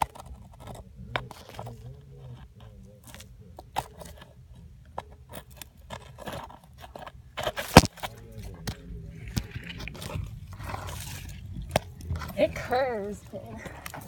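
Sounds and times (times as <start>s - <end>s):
phone handling scrapes and crunches: 0.0s - 14.0s.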